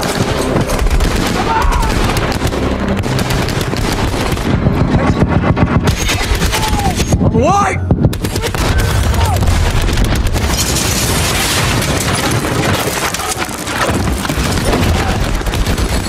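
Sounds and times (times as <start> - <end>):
debris crashing down: 8.4 - 16.0.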